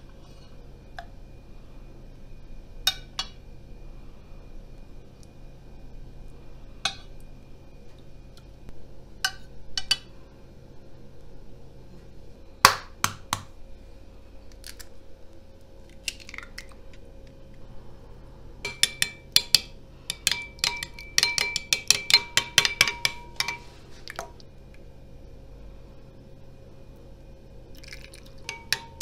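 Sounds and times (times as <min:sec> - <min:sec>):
metal spoon clinking in ceramic bowl: 0:18.7 - 0:23.7, 0:28.4 - 0:29.0.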